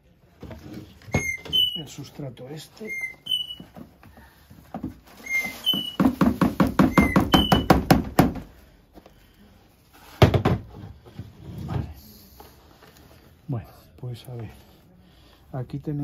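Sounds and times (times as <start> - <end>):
bird chirping: 2.8 - 3.7.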